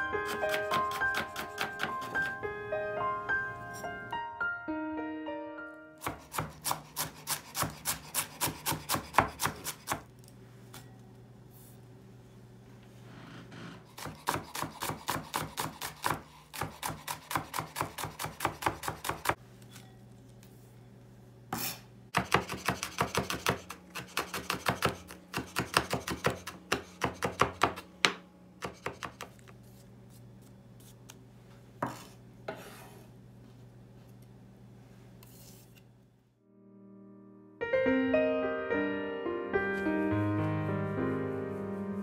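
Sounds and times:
knife chopping on wooden board: 0.3 - 2.4, 6.0 - 10.1, 13.9 - 19.4, 22.2 - 29.4.

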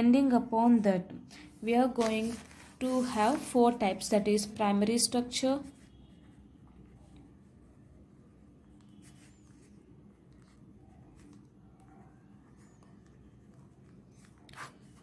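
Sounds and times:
pen scratching on paper: 8.8 - 15.0.

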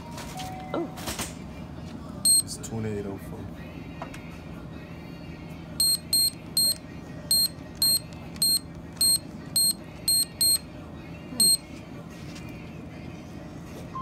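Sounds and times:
register beeping: 5.8 - 10.6, 11.4 - 11.6.

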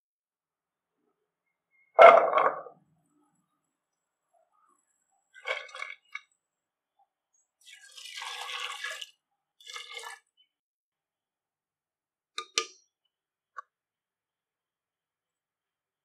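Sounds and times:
water pouring into a pot: 5.3 - 6.3, 7.6 - 10.4.

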